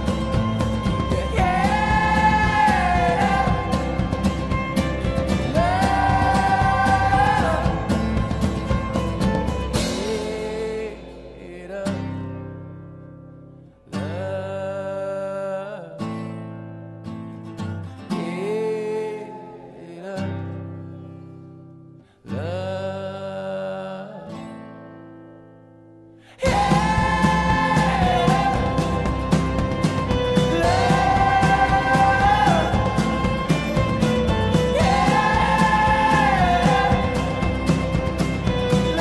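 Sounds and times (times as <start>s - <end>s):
person singing: 0.0s - 12.4s, 14.0s - 16.2s, 18.1s - 21.2s, 22.2s - 24.6s, 26.2s - 39.0s
sustained guitar chords: 0.0s - 13.8s, 24.8s - 39.0s.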